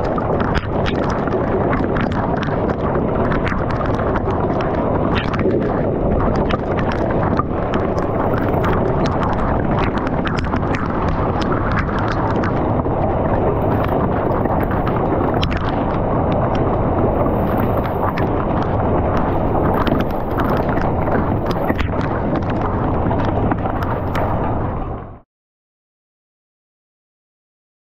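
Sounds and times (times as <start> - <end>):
wind buffeting microphone: 0.0 - 25.2.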